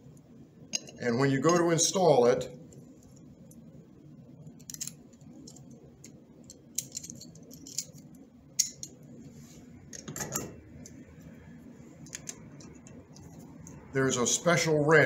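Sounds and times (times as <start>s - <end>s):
metal clutch clinking: 6.5s - 9.0s.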